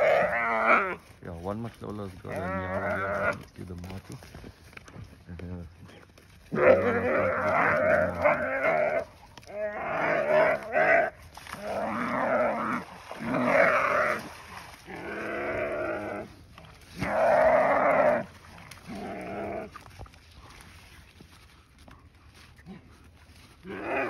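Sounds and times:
antelope bleating in distress: 0.0s - 1.0s, 2.2s - 3.5s, 6.5s - 16.3s.

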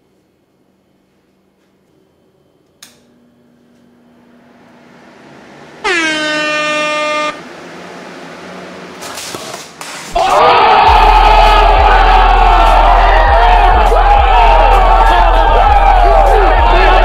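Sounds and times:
loud air horn blast: 5.8s - 7.5s.

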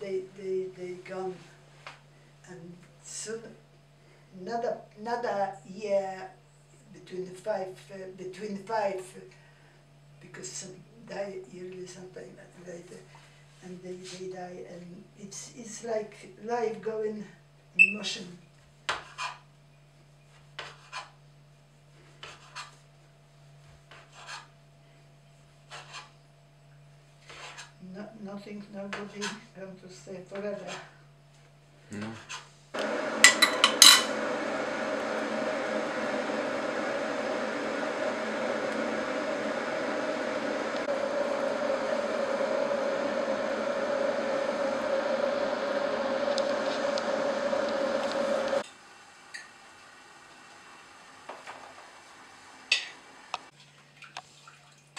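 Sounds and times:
steady hum: 32.8s - 49.2s
gas burner noise: 32.8s - 53.5s.

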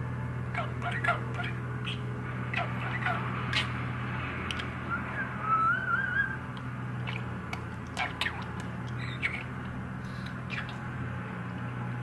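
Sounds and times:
budgerigar chirps and clicks: 0.6s - 3.8s, 4.5s - 4.8s, 6.0s - 10.9s
budgerigar warbling whistle: 0.6s - 3.8s, 4.8s - 7.3s, 8.0s - 9.6s, 10.2s - 10.8s.

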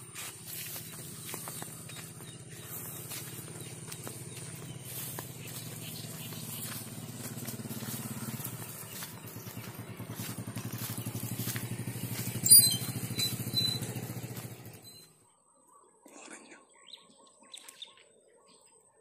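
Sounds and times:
small engine chugging: 0.0s - 15.2s.

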